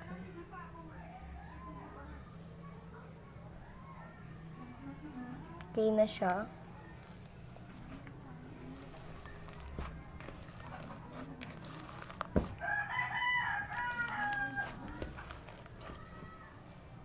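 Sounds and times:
slime squishing and crackling: 6.3s - 17.0s
rooster crowing: 12.5s - 16.4s.

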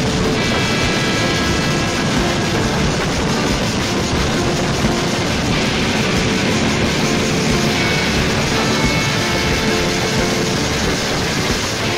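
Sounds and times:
train wheels on rails: 0.0s - 11.9s.

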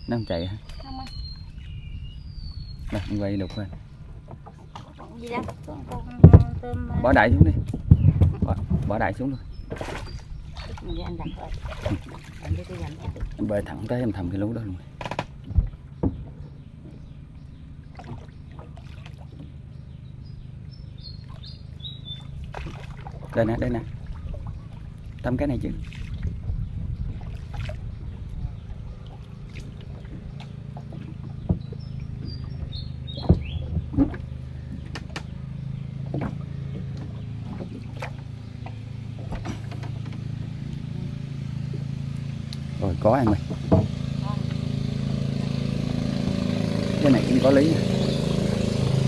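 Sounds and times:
bird chirping: 0.0s - 11.6s, 15.4s - 22.5s, 23.5s - 25.1s, 26.5s - 49.0s
steady low hum: 0.0s - 49.0s
boat pole knocking: 2.8s - 13.7s, 14.9s - 17.2s, 17.9s - 19.6s, 25.8s - 45.1s.

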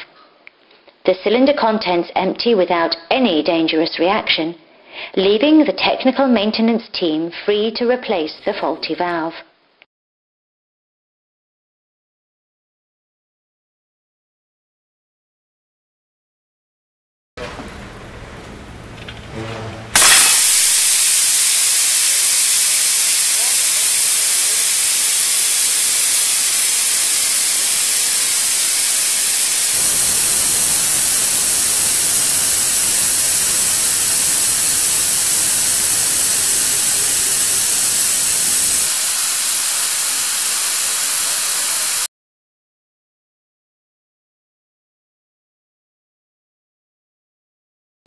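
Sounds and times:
compressed air hissing: 20.0s - 42.1s.

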